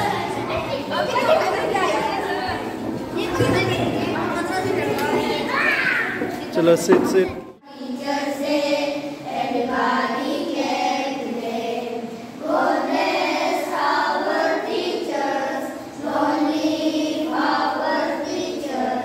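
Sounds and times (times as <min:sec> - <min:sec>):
young children singing: 0:00.0 - 0:19.0.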